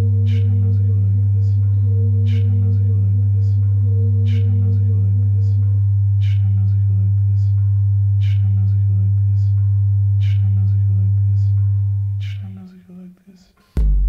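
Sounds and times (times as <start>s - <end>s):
low sine-tone drone: 0.0s - 12.5s.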